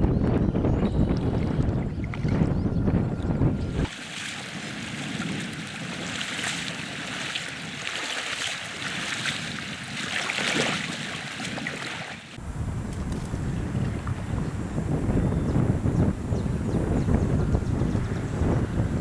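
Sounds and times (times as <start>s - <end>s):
river water lapping and splashing: 3.7s - 12.4s.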